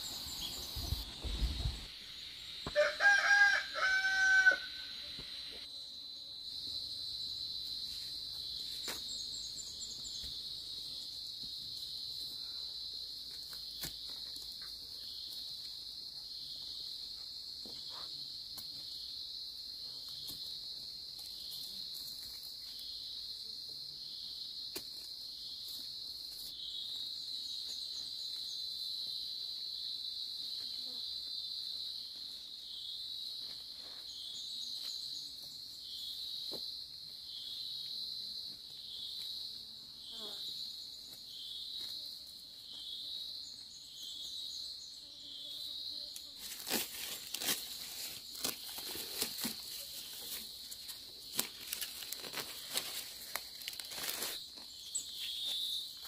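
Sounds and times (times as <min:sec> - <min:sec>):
insects chorus: 0:00.0 - 0:56.0.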